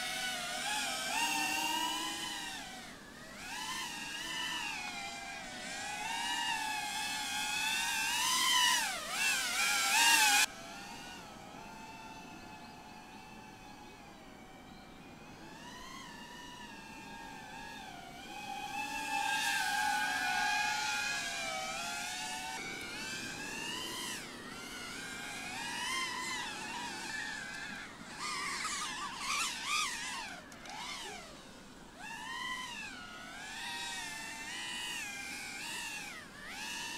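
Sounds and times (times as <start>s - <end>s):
drone motors whining: 0.0s - 36.9s.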